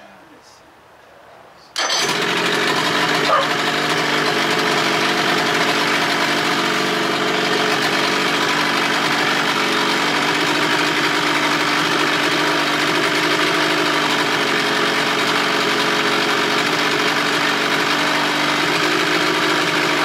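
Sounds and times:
outboard motor idling: 1.8s - 20.0s.

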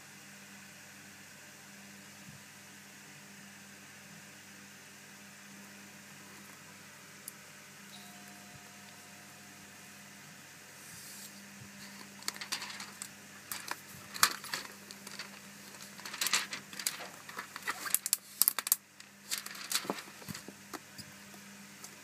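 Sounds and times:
plastic wrap crinkling: 11.8s - 20.6s.

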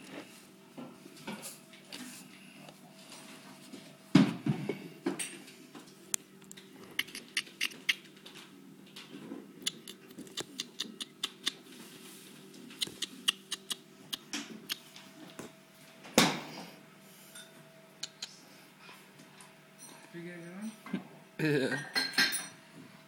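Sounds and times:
rustle against fur: 11.6s - 12.6s.

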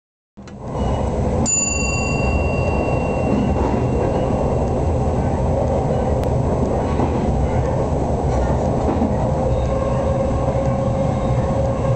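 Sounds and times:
electric train rumbling on track: 0.4s - 11.9s
bell-like ding: 0.8s - 4.6s.

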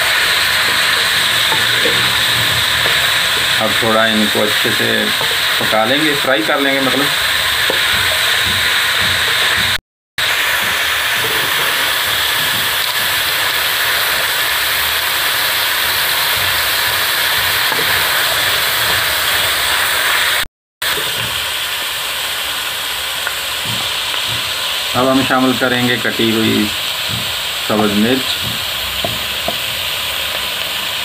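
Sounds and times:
wooden spatula stirring: 0.0s - 9.8s
food sizzling in a pan: 0.0s - 31.0s.

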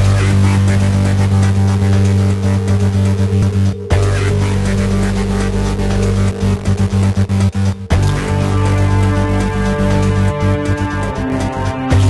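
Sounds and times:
electronic music with heavy bass: 0.0s - 12.0s.

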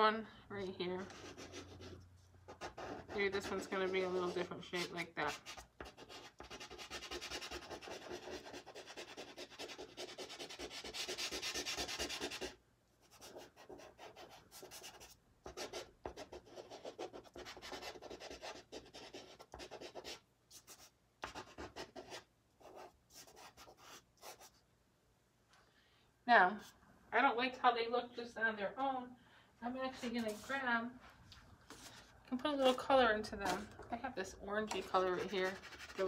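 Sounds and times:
pastel scratching on paper: 1.1s - 24.6s, 34.7s - 36.0s.

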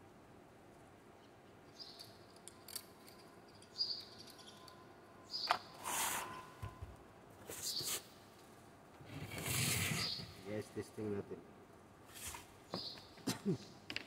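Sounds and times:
short high squeaks: 9.2s - 10.4s.

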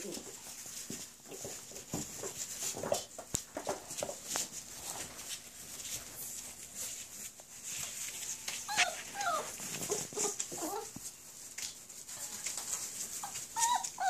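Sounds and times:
puppy paws rustling on wood shavings: 0.0s - 14.0s
puppies whimpering and squeaking: 8.2s - 11.1s, 12.5s - 14.0s.

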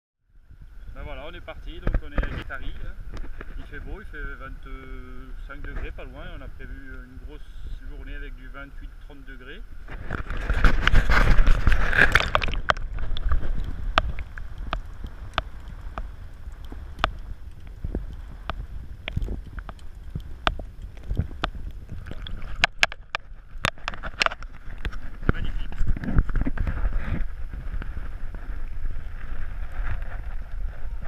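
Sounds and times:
low underwater wash: 0.3s - 31.0s
water rushing and sloshing: 9.2s - 31.0s
sharp clicks: 12.1s - 25.4s.

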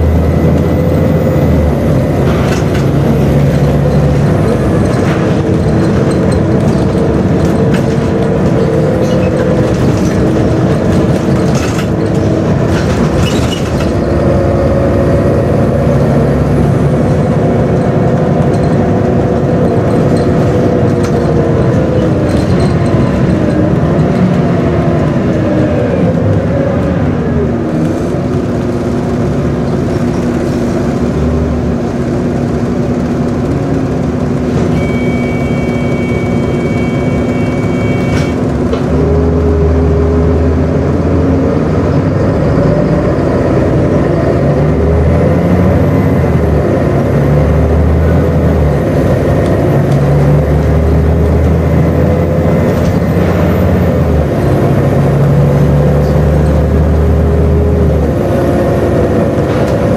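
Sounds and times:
bus diesel engine droning: 0.0s - 59.9s
steady high tone: 34.7s - 38.4s.

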